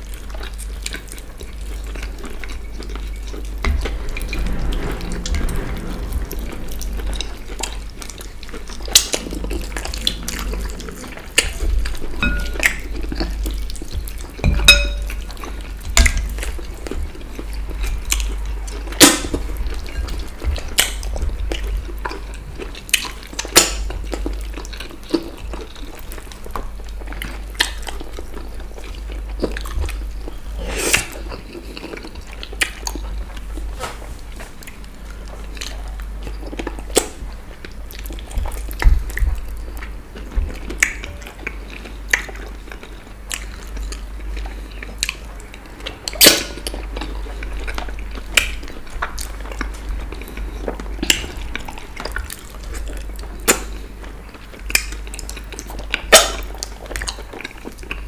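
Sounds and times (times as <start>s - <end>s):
chewing and wet mouth noises: 0.0s - 4.8s, 7.6s - 33.6s, 34.6s - 58.0s.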